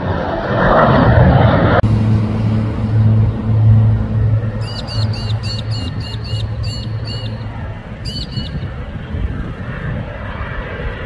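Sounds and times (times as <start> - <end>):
distant fighter jet rumble: 0.0 - 11.0
bird chirping: 4.6 - 8.7.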